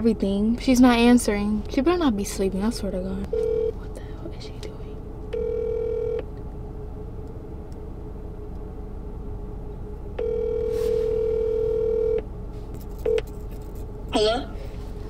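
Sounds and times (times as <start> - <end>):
low steady hum: 0.0 - 15.0
phone ringback tone: 3.3 - 3.8, 5.4 - 6.2, 10.2 - 12.2.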